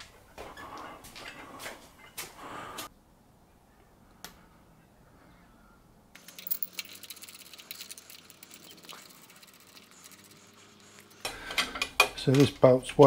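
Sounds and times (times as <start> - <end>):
metal parts clicking and tapping: 6.2 - 7.2.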